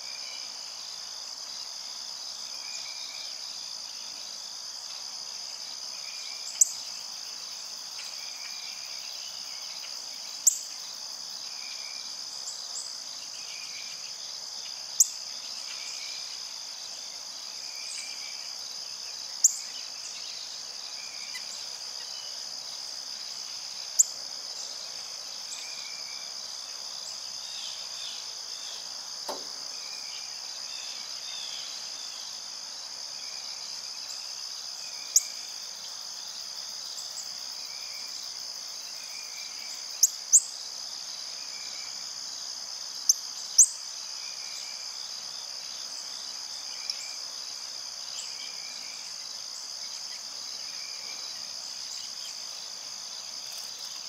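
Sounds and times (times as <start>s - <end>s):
crickets and insects trilling: 0.0s - 54.0s.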